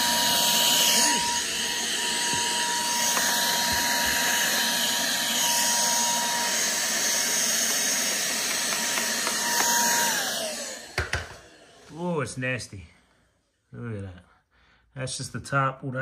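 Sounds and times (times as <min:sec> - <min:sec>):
vacuum cleaner whining: 0:00.0 - 0:12.7.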